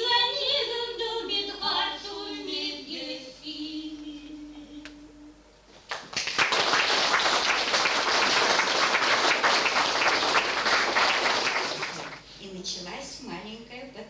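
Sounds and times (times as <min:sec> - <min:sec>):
audience applause: 0:05.9 - 0:12.2.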